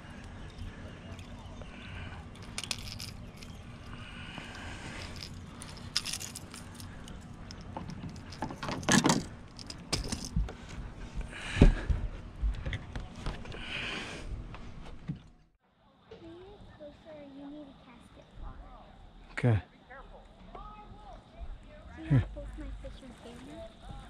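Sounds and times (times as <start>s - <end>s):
hook clicks and rattles: 2.3s - 10.4s.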